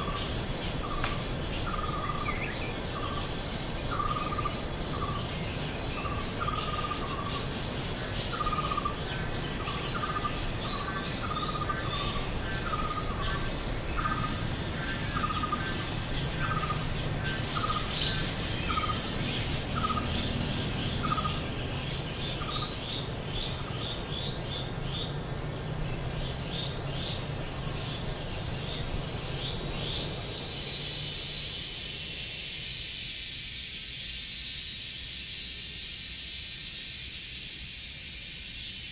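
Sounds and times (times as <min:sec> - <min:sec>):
insects high-pitched trill: 0:00.0 - 0:38.9
short falling insect call: 0:00.0 - 0:38.9
high hiss: 0:26.5 - 0:38.9.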